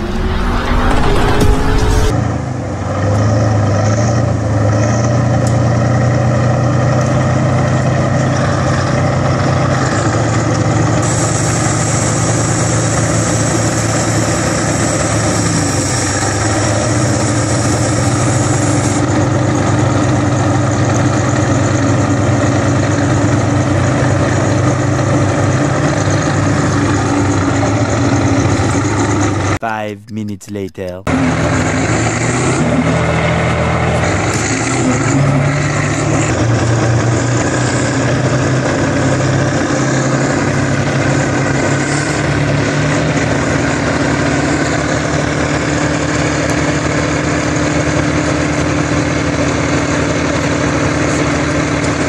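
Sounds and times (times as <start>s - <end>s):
hiss: 11.0s - 19.0s.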